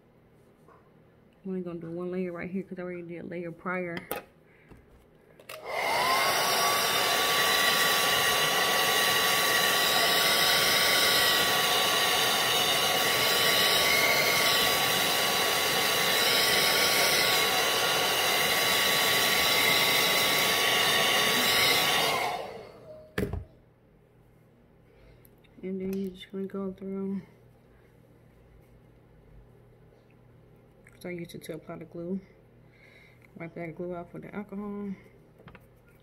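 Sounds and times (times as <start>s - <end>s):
hair dryer running: 5.4s - 23.4s.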